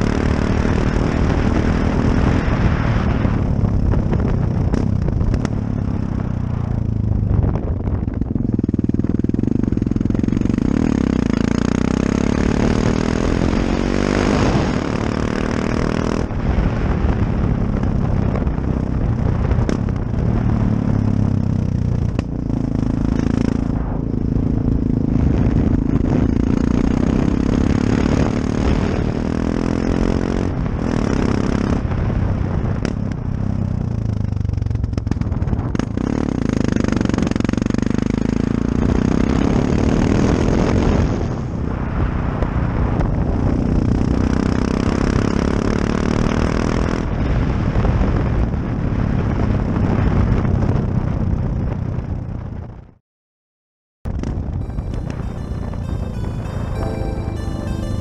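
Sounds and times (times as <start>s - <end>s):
wind rushing over microphone: 0.6s - 11.1s
motorcycle engine revving: 4.4s - 16.5s, 19.4s - 31.8s.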